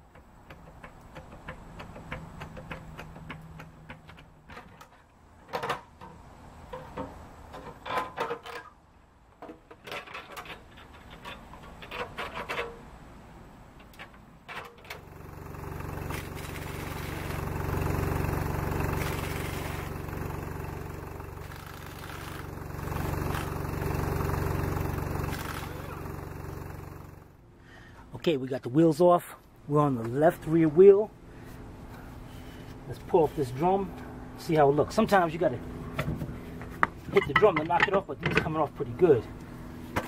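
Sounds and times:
metallic clicks and clanks: 0:00.0 - 0:08.8, 0:09.4 - 0:12.8, 0:37.1 - 0:38.6
motor drone: 0:15.1 - 0:27.3.

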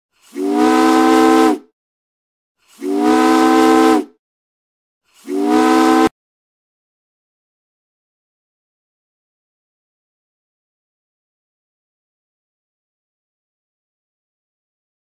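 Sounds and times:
ship's horn blasts: 0:00.3 - 0:01.7, 0:02.8 - 0:04.2, 0:05.2 - 0:06.1.

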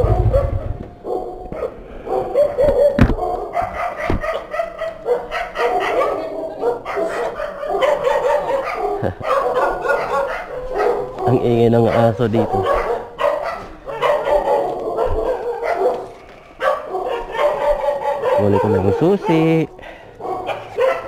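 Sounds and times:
dog barking: 0:00.0 - 0:21.0
sharp knocks: 0:04.1 - 0:04.3.

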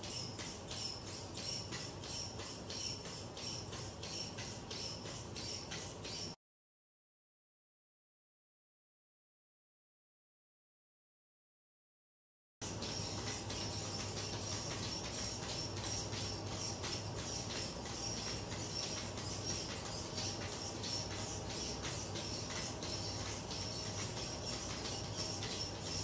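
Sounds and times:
robot stepping ticks and taps: 0:00.0 - 0:06.4.

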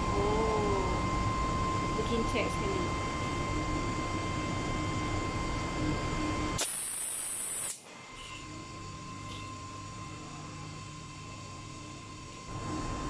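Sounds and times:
steady hum: 0:00.0 - 0:13.0
sharp high gas hiss: 0:06.6 - 0:07.8.

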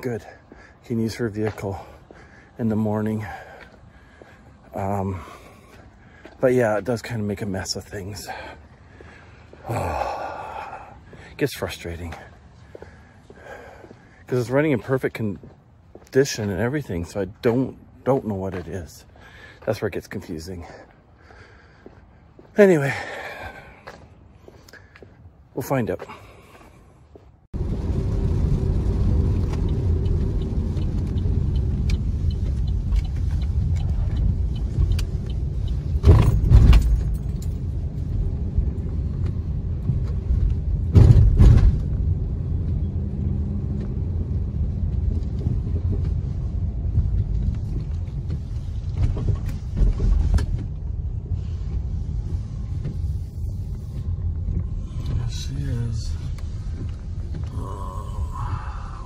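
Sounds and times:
engine and tyres on wet road: 0:27.6 - 0:59.0
vehicle bumps: 0:35.9 - 0:37.4, 0:39.2 - 0:42.2, 0:44.8 - 0:55.4.

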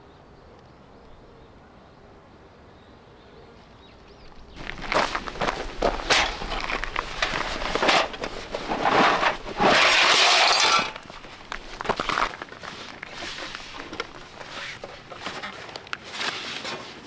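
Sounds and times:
footsteps on gravel: 0:04.3 - 0:16.4
fabric bag rustling scrape: 0:04.6 - 0:17.0
steel parts clinking: 0:05.4 - 0:15.7.

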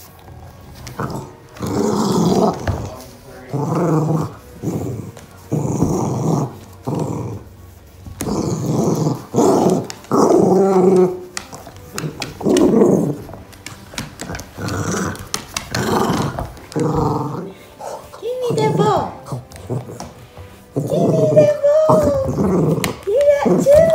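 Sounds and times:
small dog growling: 0:00.9 - 0:07.5, 0:08.2 - 0:13.4, 0:14.2 - 0:18.1, 0:18.7 - 0:23.7.

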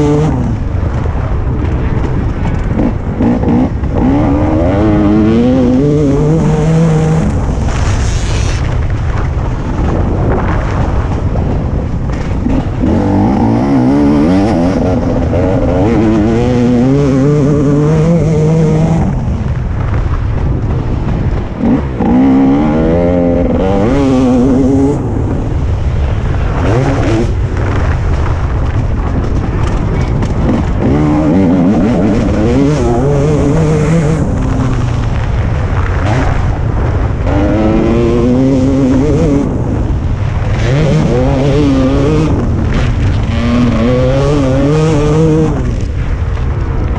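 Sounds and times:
motocross bike engine revving: 0:00.0 - 0:08.7, 0:12.1 - 0:19.6, 0:20.9 - 0:28.7, 0:29.5 - 0:46.2.

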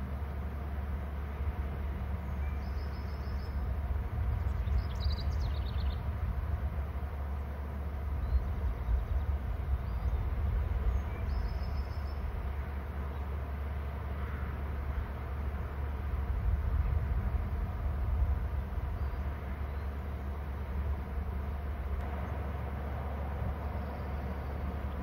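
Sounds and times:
steady low rumble: 0:00.0 - 0:25.0
songbird trilling: 0:04.5 - 0:06.0.

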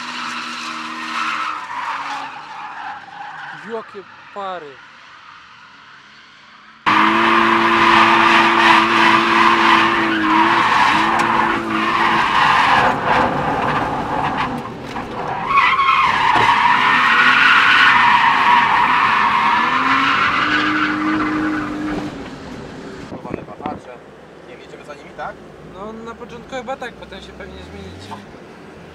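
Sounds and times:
tyres squealing: 0:00.0 - 0:05.6, 0:06.9 - 0:22.2
engine at high revs: 0:06.8 - 0:14.6, 0:16.4 - 0:23.1.

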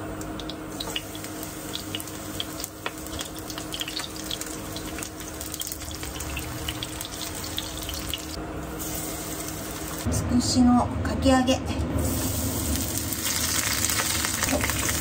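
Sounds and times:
tempura frying in oil: 0:00.0 - 0:10.1, 0:12.0 - 0:15.0.

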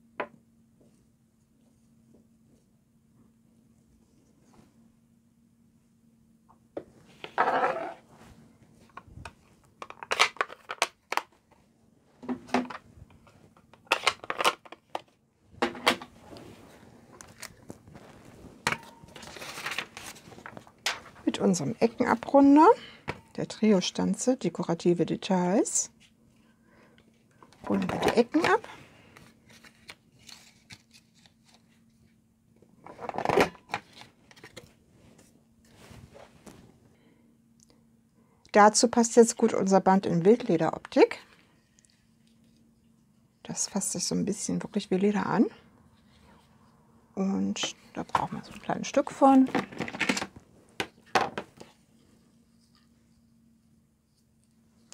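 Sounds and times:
paper handling: 0:29.1 - 0:32.0.

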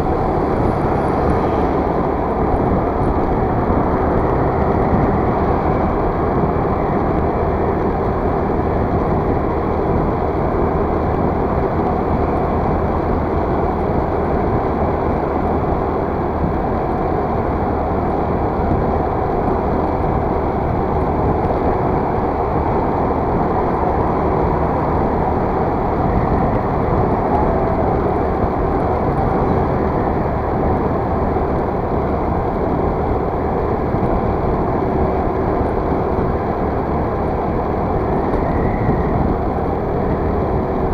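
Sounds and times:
scooter engine hum: 0:00.0 - 0:40.9
wind rushing: 0:19.8 - 0:40.9.

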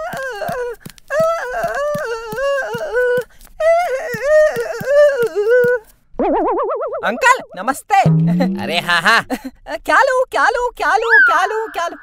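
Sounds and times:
quick footstep clicks: 0:00.0 - 0:06.0.

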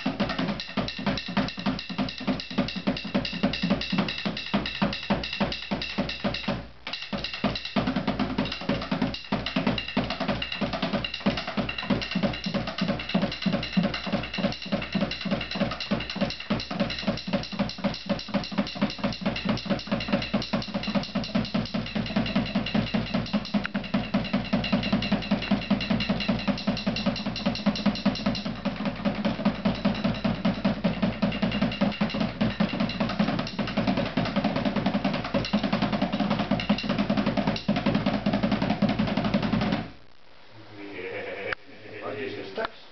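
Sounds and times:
hide drum beaten fast: 0:00.0 - 0:39.9.

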